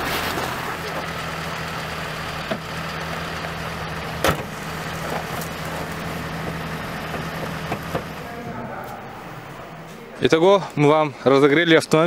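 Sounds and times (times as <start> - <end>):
car engine idling: 0.0 - 10.5
car hood slamming shut: 4.2 - 5.4, 7.1 - 8.2.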